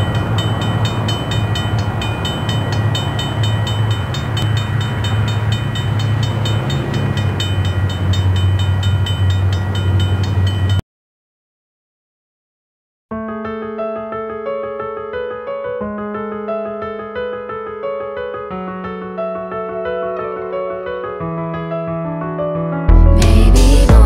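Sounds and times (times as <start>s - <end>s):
fast even ringing: 0.0s - 10.8s
train rumbling: 0.0s - 10.8s.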